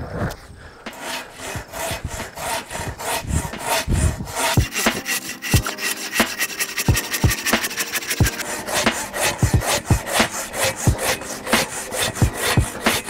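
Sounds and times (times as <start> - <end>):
pull saw sawing log: 0.9 - 13.0.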